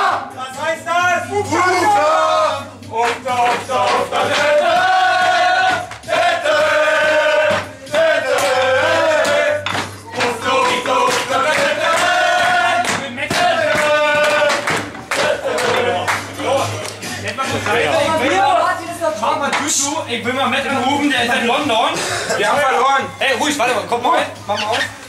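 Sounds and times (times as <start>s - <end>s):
men singing together: 1.3s - 18.2s.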